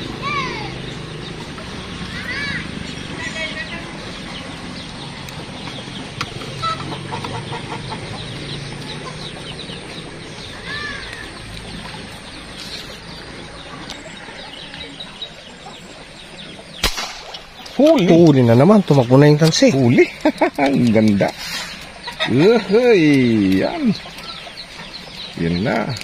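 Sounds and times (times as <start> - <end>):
chickens clucking: 0.0 - 26.0
small bird chirps: 18.9 - 26.0.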